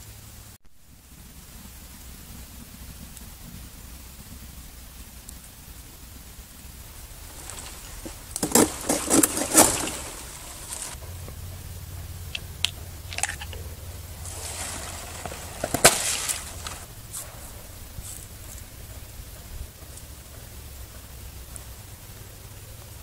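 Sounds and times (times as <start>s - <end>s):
stiff fronds rustling: 0.8s - 23.0s
knife cracking through stems: 7.4s - 11.0s, 12.3s - 13.6s, 14.3s - 16.9s.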